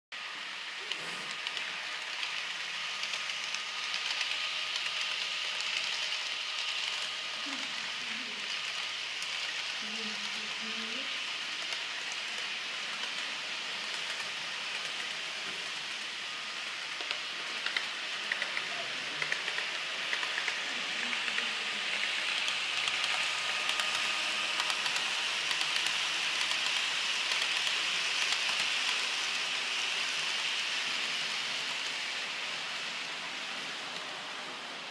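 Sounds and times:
model train whirring on track: 0.2 - 34.9.

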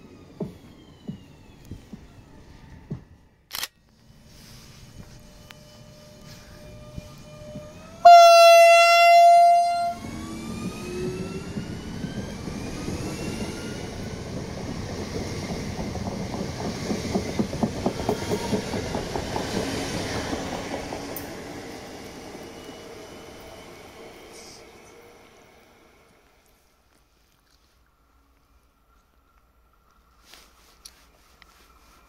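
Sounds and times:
traction motors whining: 4.9 - 26.4
train horn blast: 8.0 - 10.2.

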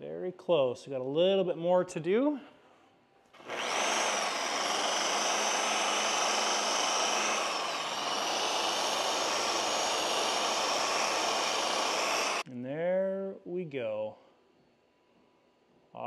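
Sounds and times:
rotary polisher motor whine: 3.4 - 12.5.

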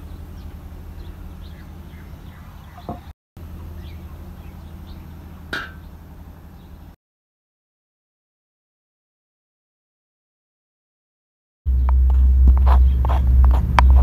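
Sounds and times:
faint bird chirps: 0.0 - 7.0
steady low hum: 0.0 - 7.0, 11.7 - 14.0.

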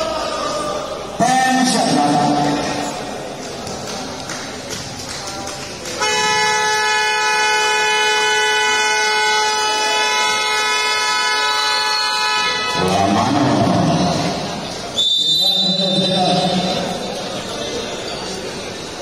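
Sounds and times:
scoreboard horn blast: 6.0 - 12.9.

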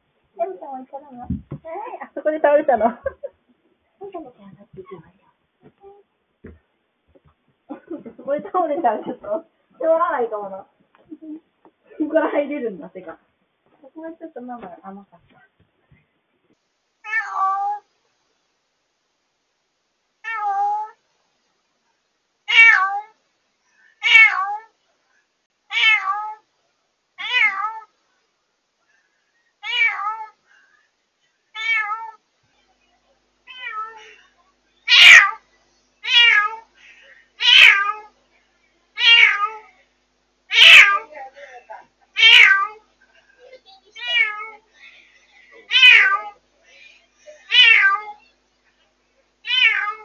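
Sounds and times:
cat meowing loudly: 17.0 - 17.8, 22.5 - 23.2, 24.0 - 24.7, 25.7 - 26.4, 27.2 - 27.9, 29.6 - 30.4, 31.6 - 32.2, 34.9 - 35.4, 36.0 - 36.6, 37.4 - 38.1, 39.0 - 39.6, 40.5 - 41.1, 42.2 - 42.8, 44.0 - 44.6, 45.7 - 46.4, 47.5 - 48.2, 49.4 - 50.0.

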